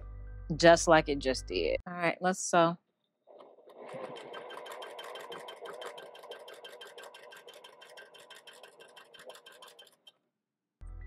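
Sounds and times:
sewing machine running: 3.7s - 10.1s.

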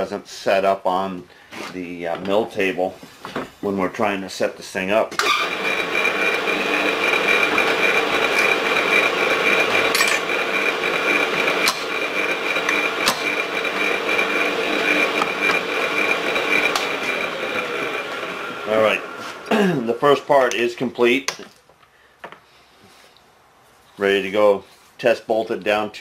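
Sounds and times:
drill press whining: 5.2s - 19.6s.

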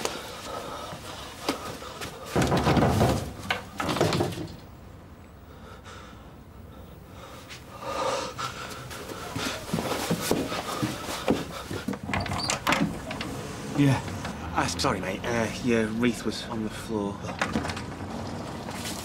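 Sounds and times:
light knocks of movement: 8.6s - 13.4s.

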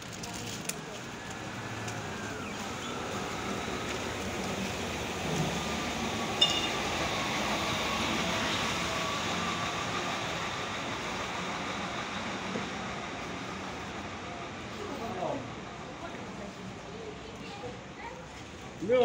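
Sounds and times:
bus engine hum with whine: 0.0s - 18.0s
short high ping: 6.4s - 6.8s.

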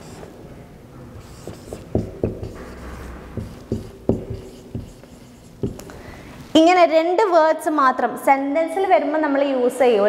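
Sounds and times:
marker pen writing on whiteboard: 0.0s - 0.4s, 1.2s - 6.0s.

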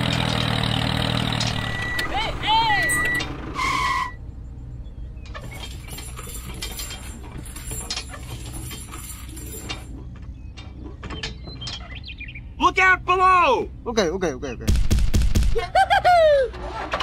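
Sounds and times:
short beep: 1.6s - 2.2s, 2.8s - 4.2s
metal chain clinking: 5.3s - 10.0s.

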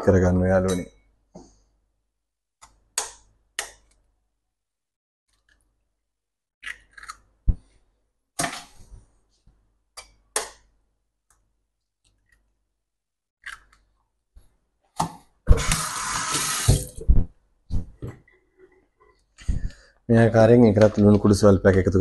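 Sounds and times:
kitchen tap running: 15.5s - 17.1s.

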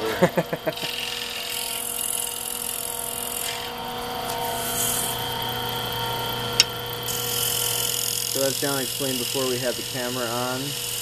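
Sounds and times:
wood lathe motor hum: 0.0s - 11.0s
turning tool hissing scrape: 3.3s - 5.3s, 7.0s - 11.0s.

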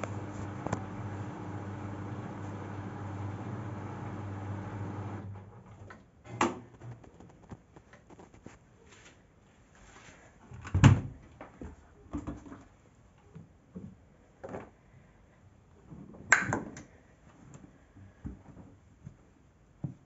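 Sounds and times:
washing machine hum: 0.0s - 5.8s.

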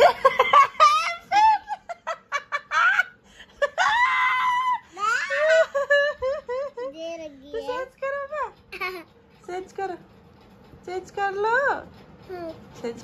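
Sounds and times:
child squealing with laughter: 3.8s - 5.6s.

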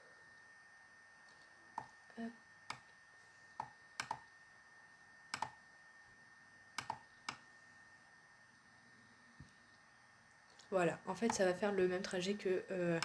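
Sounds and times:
computer mouse clicks: 3.6s - 4.3s, 5.3s - 5.6s, 6.8s - 7.4s.

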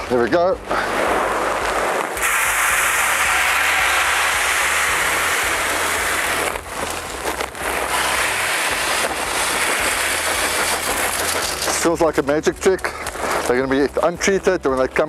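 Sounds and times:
soybeans pouring into drum: 2.1s - 12.6s.

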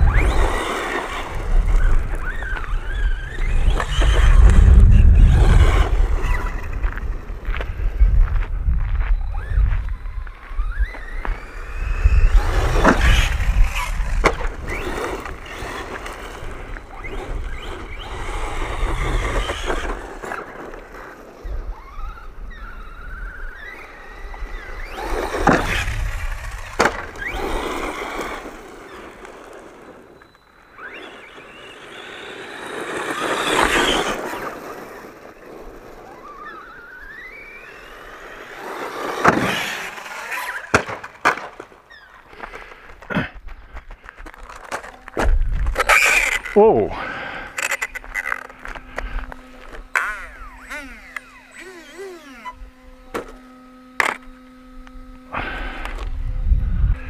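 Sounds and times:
toy truck motor whining: 0.0s - 7.0s, 9.2s - 40.8s, 41.8s - 43.0s, 43.7s - 57.0s
toy truck landing thumps: 39.2s - 39.8s, 40.6s - 41.8s, 53.1s - 53.4s.

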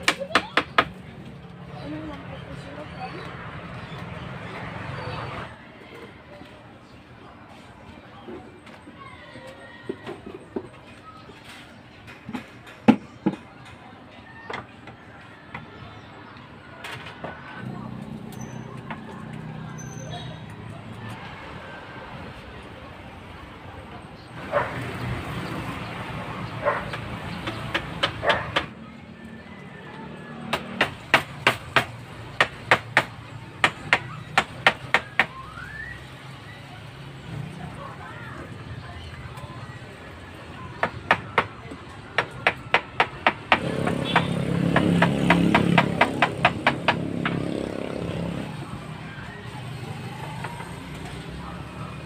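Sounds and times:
knocks of tools on wood: 42.2s - 47.5s.

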